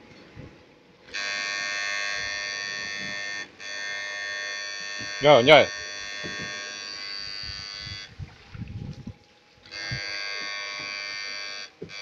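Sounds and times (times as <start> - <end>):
high-pitched electronic buzz: 1.1 - 8.2, 9.7 - 12.0.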